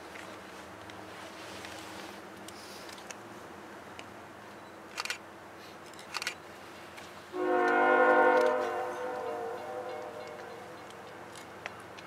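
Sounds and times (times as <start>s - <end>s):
locomotive air horn blast: 7.3s - 10.8s.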